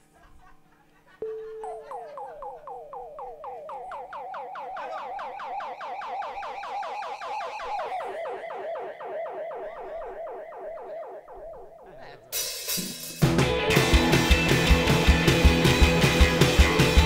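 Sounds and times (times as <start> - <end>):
siren-like warbling tone: 1.2 - 12.3.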